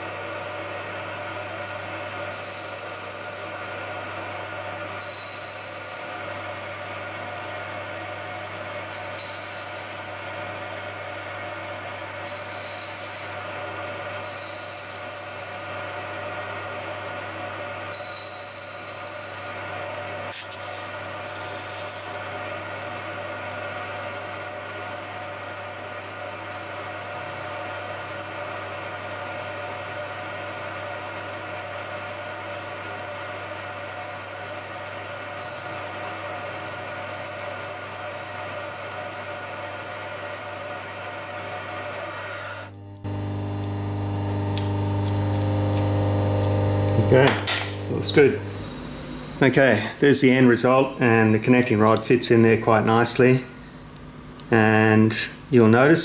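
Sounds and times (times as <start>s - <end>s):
motor and spindle hum: 0.0s - 7.7s, 8.8s - 54.7s
end mill cutting metal whine: 42.2s - 53.3s.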